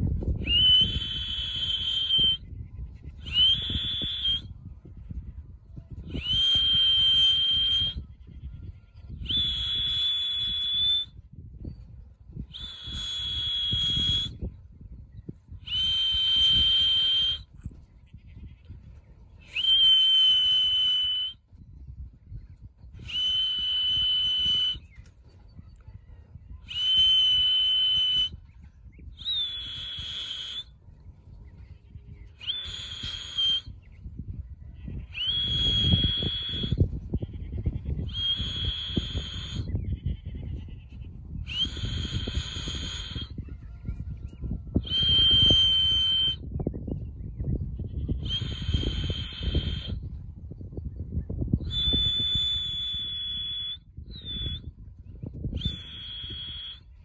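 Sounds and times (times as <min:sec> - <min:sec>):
whistle blasts: 0:00.4 - 0:02.5, 0:03.3 - 0:04.5, 0:06.1 - 0:08.0, 0:09.2 - 0:11.2, 0:12.5 - 0:14.5, 0:15.6 - 0:17.5, 0:19.5 - 0:21.4, 0:23.0 - 0:25.0, 0:26.7 - 0:28.4, 0:29.2 - 0:30.8, 0:32.4 - 0:33.8, 0:35.1 - 0:37.0, 0:38.0 - 0:39.8, 0:41.5 - 0:43.4, 0:44.7 - 0:46.5, 0:48.1 - 0:50.0, 0:51.7 - 0:54.7, 0:55.5 - 0:57.0.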